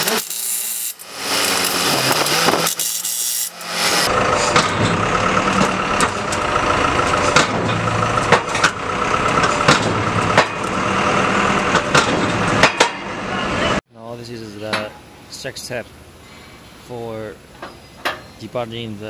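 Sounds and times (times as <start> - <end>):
power drill driving bolts: 0.0 - 4.1.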